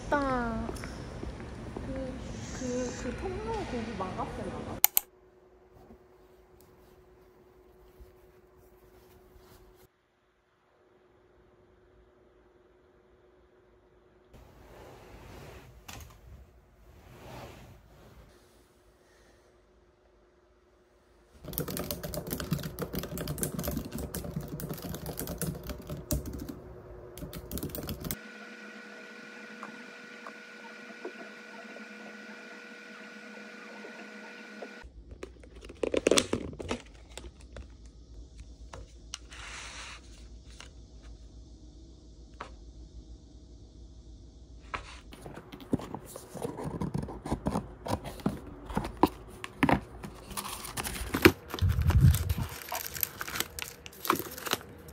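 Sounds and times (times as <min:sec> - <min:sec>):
faint steady hum: 0:00.0 - 0:54.9
typing on laptop keyboard: 0:21.4 - 0:26.6, 0:27.2 - 0:28.2
tissue paper rustling: 0:50.0 - 0:54.9.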